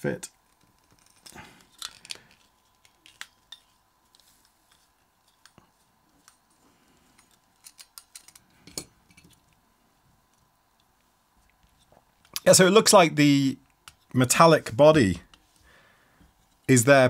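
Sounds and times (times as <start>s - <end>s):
faint metal clicks and scrapes: 0.3s - 9.6s.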